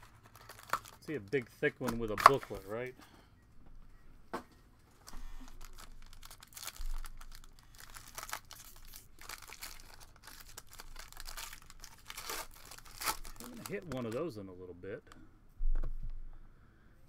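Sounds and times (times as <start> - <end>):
wrapper crinkling and tearing: 0.0 - 2.8, 5.0 - 14.3.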